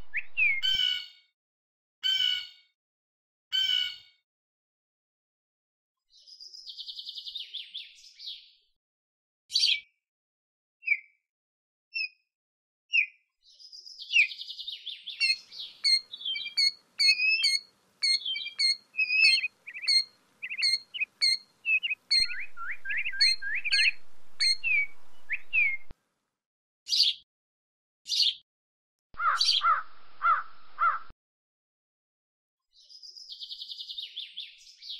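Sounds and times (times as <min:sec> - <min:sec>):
killdeer calling: 0:15.1 - 0:25.9, 0:29.2 - 0:31.1.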